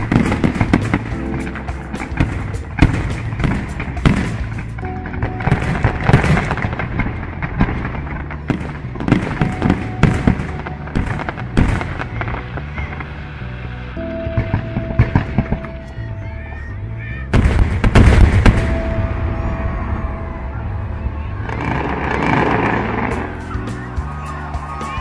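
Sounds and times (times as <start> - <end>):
firework shell bursts and crackling: 0.0 - 12.7
music playing: 0.0 - 25.0.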